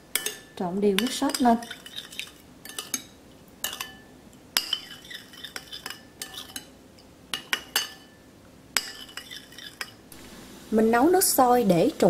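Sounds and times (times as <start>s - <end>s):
metal spoon stirring in bowl: 0.1s - 8.2s, 8.8s - 10.0s.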